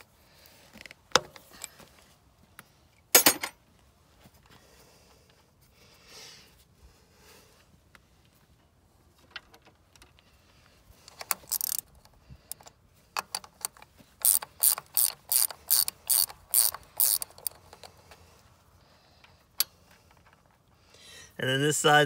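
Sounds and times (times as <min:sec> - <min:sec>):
ratchet wrench clicking: 0:11.1 - 0:18.0.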